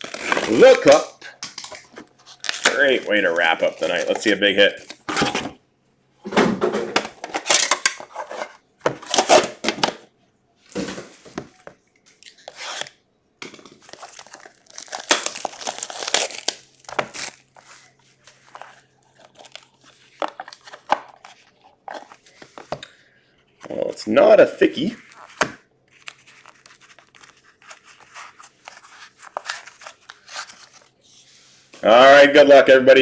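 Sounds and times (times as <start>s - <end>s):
plastic wrapping tearing and crinkling: 0.0s - 1.1s, 1.7s - 4.3s, 13.8s - 17.7s.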